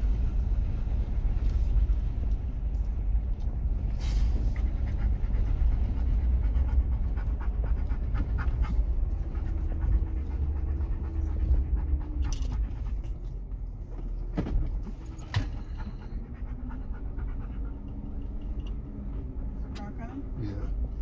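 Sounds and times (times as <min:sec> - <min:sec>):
vehicle rumbling on dirt trail: 0:00.0 - 0:21.0
dog panting: 0:04.2 - 0:13.9, 0:14.7 - 0:20.2.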